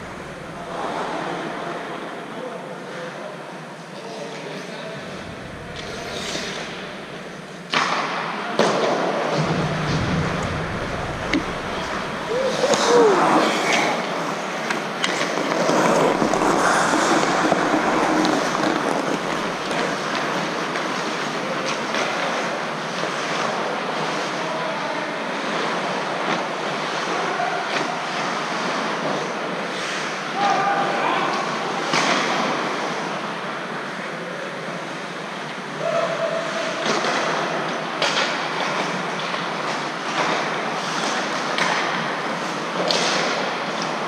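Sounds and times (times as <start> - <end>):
skates scraping on ice: 5.4 - 8.0, 9.3 - 24.3
hockey sticks and puck clacking: 7.6 - 24.3, 31.8 - 32.9, 36.8 - 44.0
players shouting: 10.4 - 14.0.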